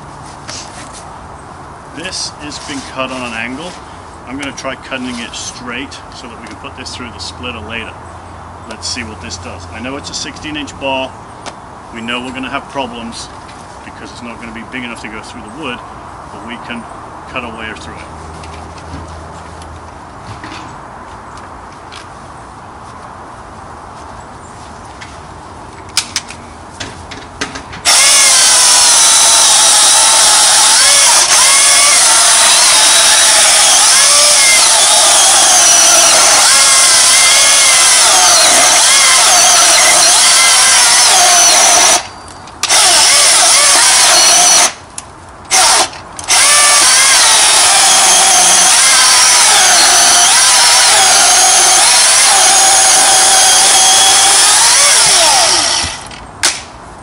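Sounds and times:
electric chainsaw cutting log: 27.8s - 44.8s, 45.5s - 56.6s.

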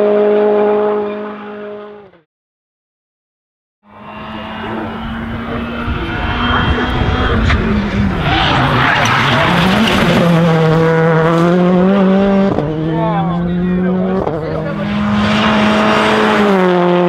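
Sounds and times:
rally car engine revving: 0.0s - 2.2s, 3.9s - 17.0s.

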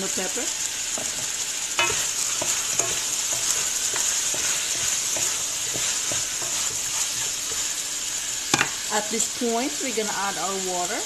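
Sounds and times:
food sizzling in oil: 0.0s - 11.0s
wooden spatula scraping a pot: 1.0s - 7.8s.

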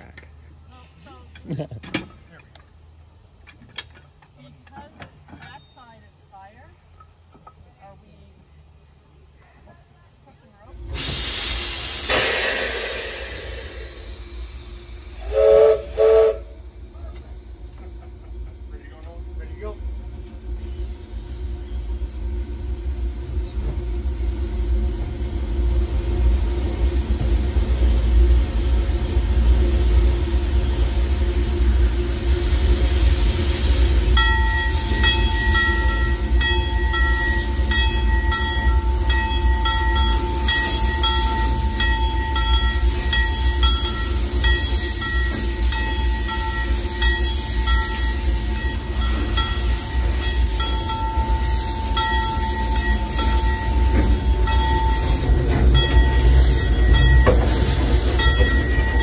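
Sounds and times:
steam locomotive rumble: 0.0s - 59.0s
high ringing tone: 34.2s - 59.0s.

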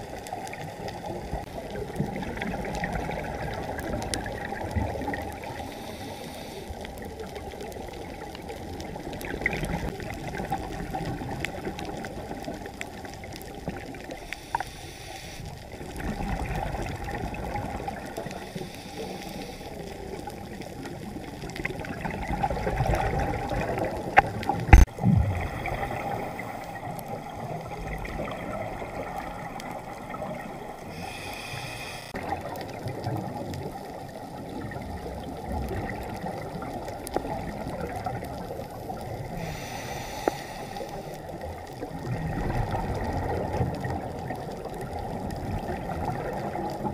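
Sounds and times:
muffled underwater rush of bubbles: 0.0s - 46.9s.

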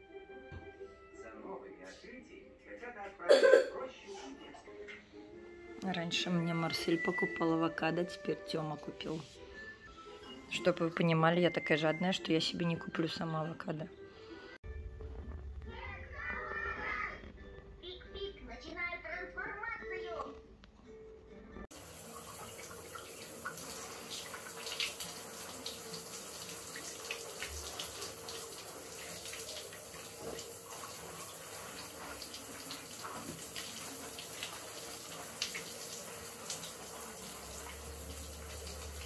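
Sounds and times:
water running from a tap: 21.7s - 39.0s.

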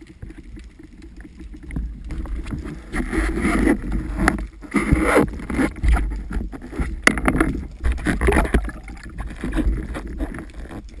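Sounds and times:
water sloshing and splashing: 0.0s - 11.0s.

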